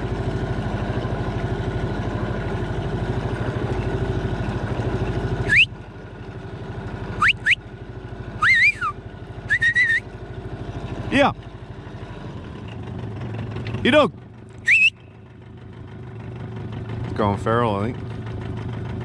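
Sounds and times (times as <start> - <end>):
outboard motor running: 0.0 - 19.0
person whistling: 5.4 - 5.7, 7.2 - 7.6, 8.4 - 10.0, 14.7 - 15.0.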